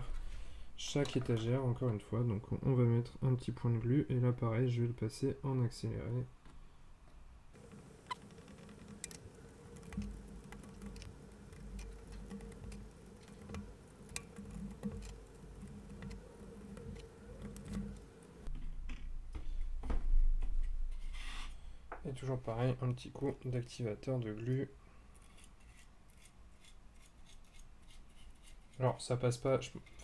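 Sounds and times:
faint steady hum: 0.0 - 30.0
rubbing and handling noise: 7.6 - 19.5, 24.4 - 30.0.

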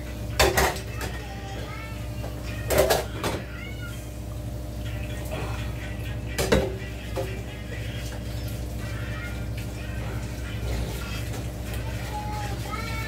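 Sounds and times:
steady background hum: 0.0 - 13.0
dishes clattering in a sink: 0.3 - 1.3, 2.2 - 3.6, 6.3 - 7.4.

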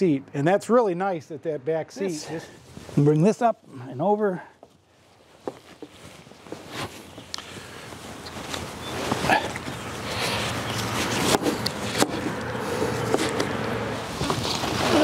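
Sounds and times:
fabric seat cover rustling: 5.3 - 9.8.

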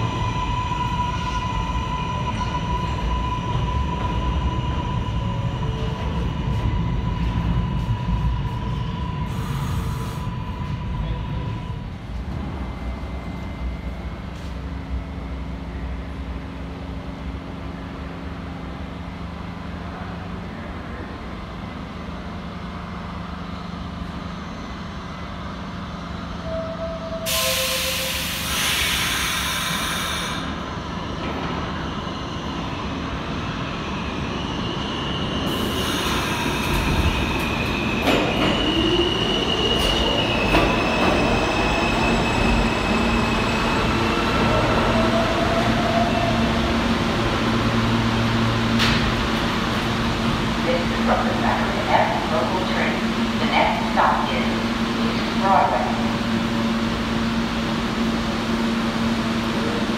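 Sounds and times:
subway train rumble: 0.0 - 59.9
train wheels squealing: 33.8 - 46.4.

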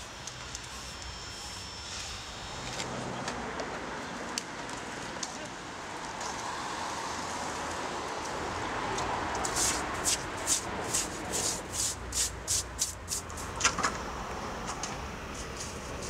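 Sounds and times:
brush scrubbing concrete: 9.5 - 13.3.

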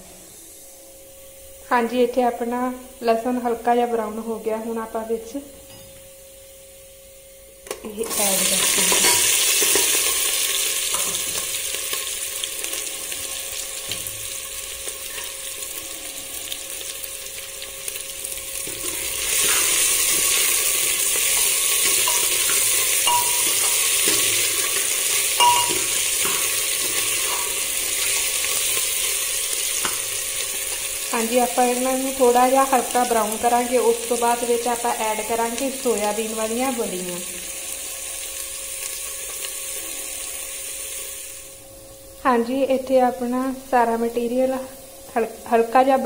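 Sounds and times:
vegetables sizzling in hot oil: 7.9 - 41.6.

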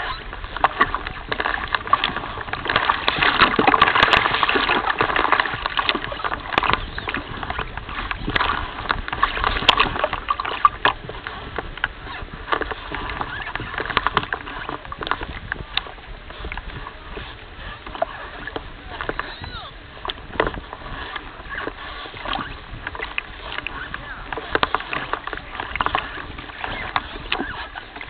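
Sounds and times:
small crackles and clicks: 0.0 - 16.7
water lapping and splashing: 0.0 - 28.0.

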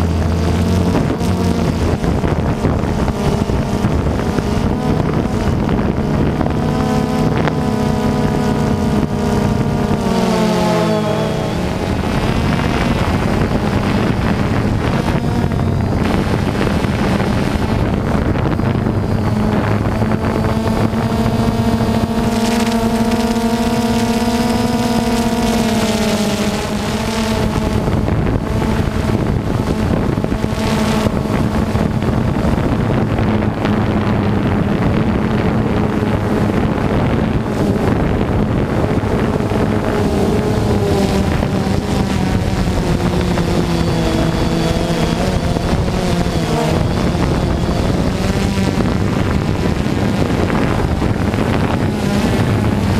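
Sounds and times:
drone motors humming: 0.0 - 52.9
wind noise on microphone: 0.0 - 52.9.

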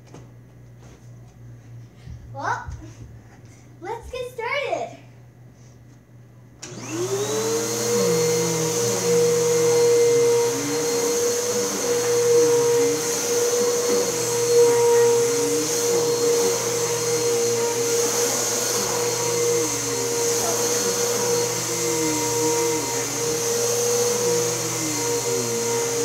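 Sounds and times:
vacuum cleaner running: 6.6 - 26.0.

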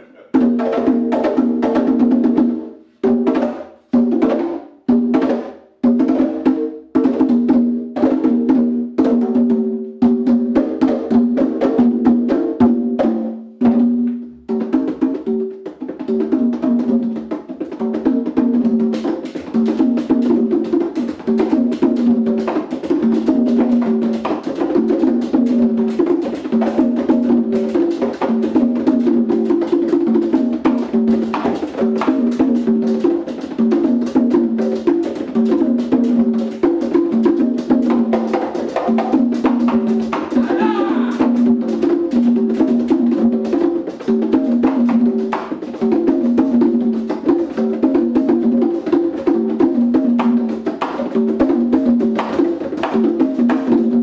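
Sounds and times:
congas played by hand: 0.0 - 54.0.

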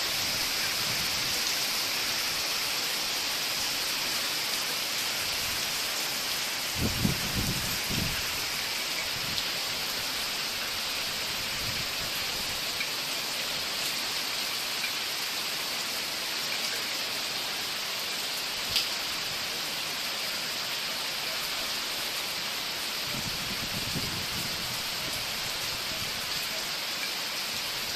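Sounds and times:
heavy rain hissing: 0.0 - 27.9
raindrop ticks: 18.7 - 19.0.

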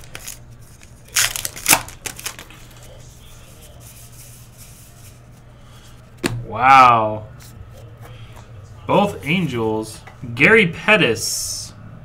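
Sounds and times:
card pack wrapper crinkling: 0.0 - 3.0
handling of cards: 0.0 - 6.4
steady low hum: 0.0 - 12.0.

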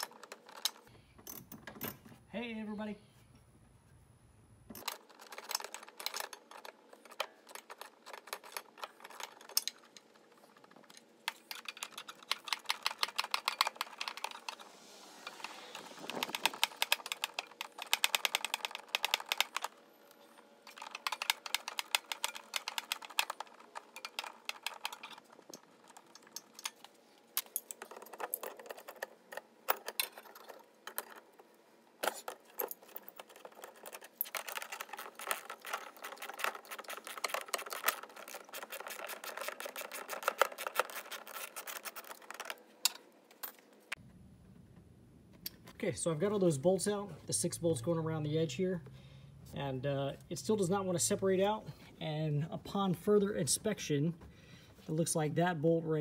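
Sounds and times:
socket ratchet clicking: 16.2 - 19.7, 20.7 - 26.8.

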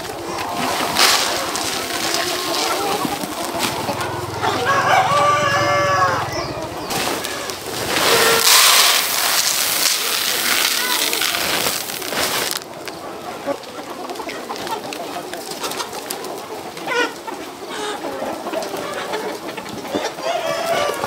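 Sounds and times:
chickens clucking and chirping: 0.0 - 21.0
loud hiss: 7.7 - 12.6.

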